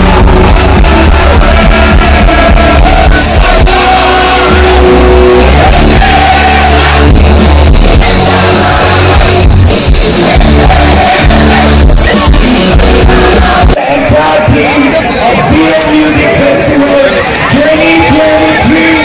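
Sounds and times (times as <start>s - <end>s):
live rock band playing: 0.0s - 13.8s
crowd shouting: 0.0s - 19.0s.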